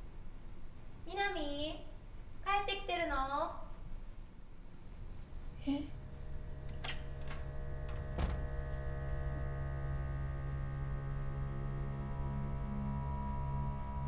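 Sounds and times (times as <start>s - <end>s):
ominous horror drone: 5.6s - 14.0s.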